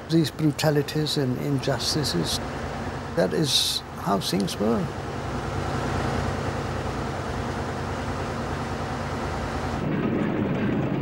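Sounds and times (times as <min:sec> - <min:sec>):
tank engine and track rumble: 0:00.0 - 0:11.0.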